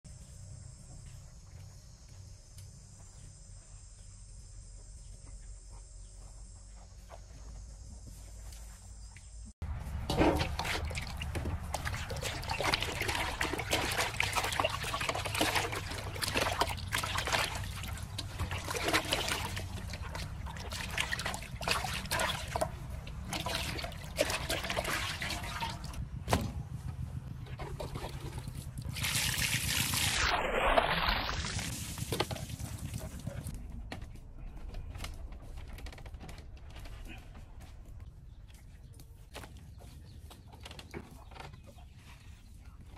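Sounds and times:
high insect chorus: 0.1s - 9.5s
water sloshing in metal basin: 9.9s - 26.0s, 27.5s - 31.6s
hands scrubbing: 10.3s - 26.0s.

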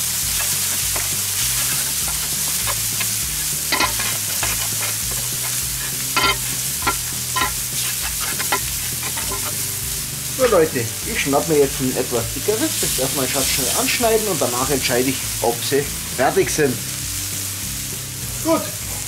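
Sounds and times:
meat and onions sizzling: 0.0s - 19.0s
metal spatula scraping plate: 0.4s - 9.6s.

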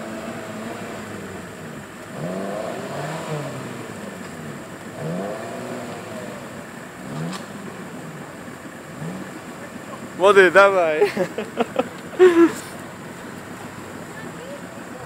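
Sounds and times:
engine revving in bursts: 0.0s - 9.8s.

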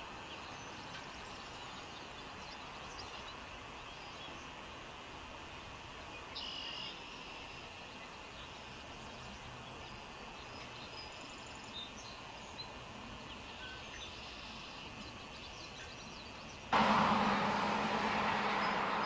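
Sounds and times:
low hum: 16.8s - 19.0s
rushing noise: 16.8s - 19.0s
steady hiss: 16.8s - 19.0s.

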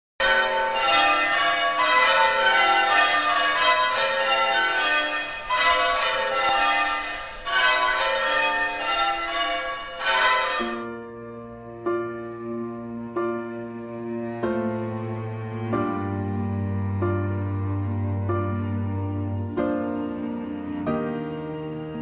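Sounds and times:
church bells pealing: 0.2s - 12.6s.

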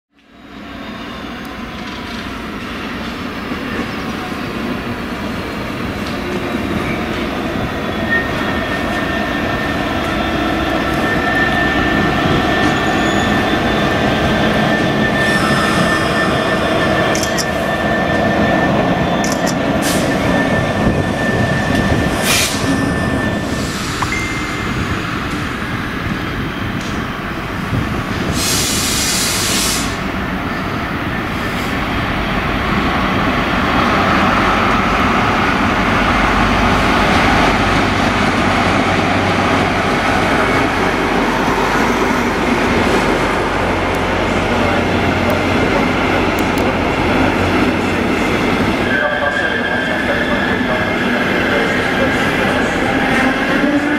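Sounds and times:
brief hiss: 28.3s - 30.0s.

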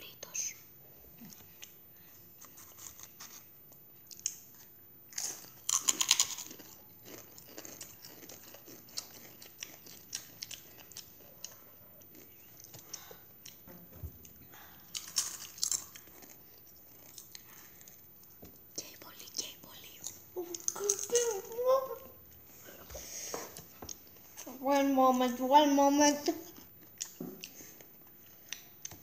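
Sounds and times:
tortilla chips crunching: 5.1s - 11.2s, 14.9s - 17.5s.

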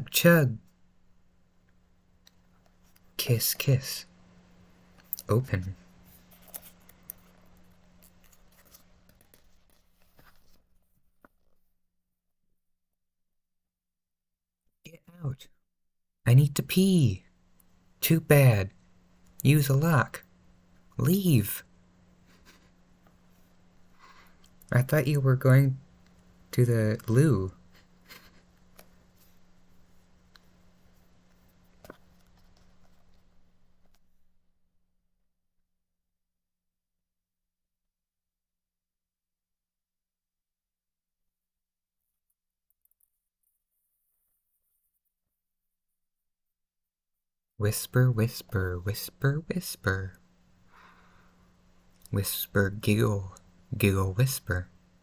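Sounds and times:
low steady hum: 0.0s - 11.9s, 16.2s - 35.4s, 47.6s - 55.0s
hands rustling book pages: 6.0s - 11.7s, 27.7s - 34.2s
page turning rustle: 6.1s - 11.6s
small paper clicks: 6.3s - 10.6s.

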